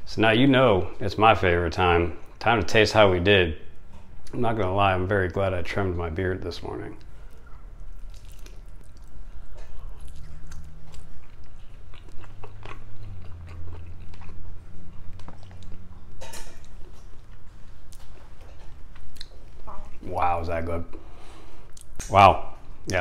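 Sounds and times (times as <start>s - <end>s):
man chewing chicken: 7.0s - 20.0s.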